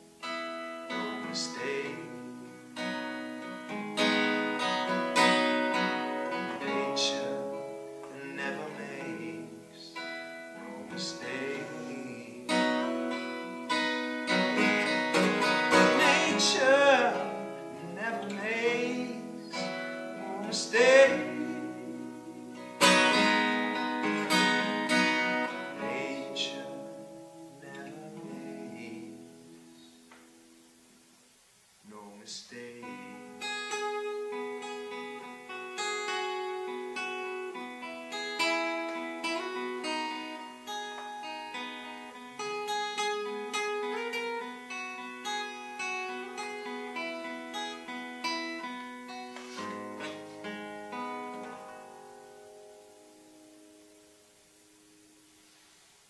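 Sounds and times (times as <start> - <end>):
acoustic guitar picking: 0.0 - 30.7, 32.6 - 55.2
wordless singing: 0.8 - 2.6, 5.8 - 30.0, 31.8 - 33.4.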